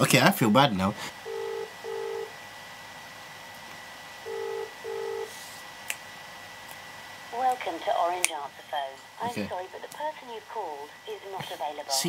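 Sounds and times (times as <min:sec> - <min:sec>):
faint line whine: 0:00.0 - 0:05.6
telephone ringing tone: 0:01.2 - 0:02.3, 0:04.2 - 0:05.4.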